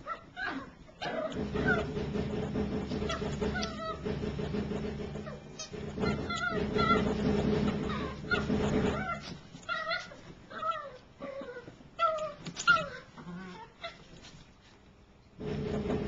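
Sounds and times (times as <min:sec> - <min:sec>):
puppy yipping and whining: 0:00.0 - 0:01.9, 0:07.8 - 0:14.2.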